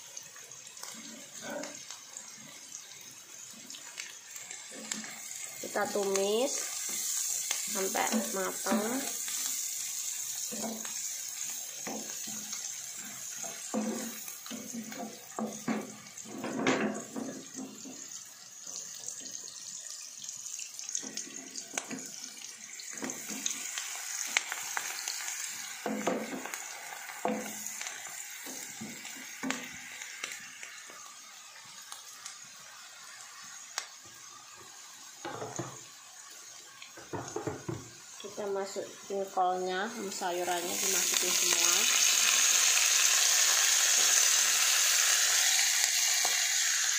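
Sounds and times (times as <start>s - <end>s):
vegetables sizzling in a pan: 0.0s - 46.9s
spatula scraping and knocking pan: 13.3s - 18.0s.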